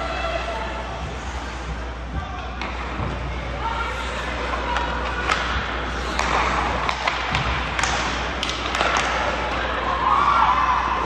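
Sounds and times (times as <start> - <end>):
hockey sticks clacking on puck: 4.4 - 9.8.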